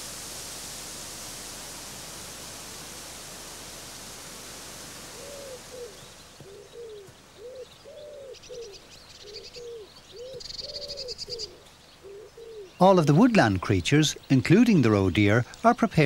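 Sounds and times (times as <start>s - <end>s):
wind rustling tree leaves: 0.0s - 16.0s
pigeon cooing: 5.2s - 12.8s
small bird chirping: 5.2s - 13.2s.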